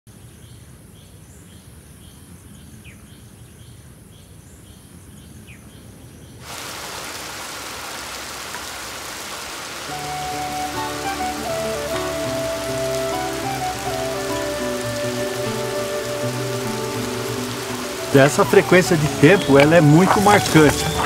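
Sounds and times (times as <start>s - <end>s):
heavy rain on foliage: 6.4s - 21.0s.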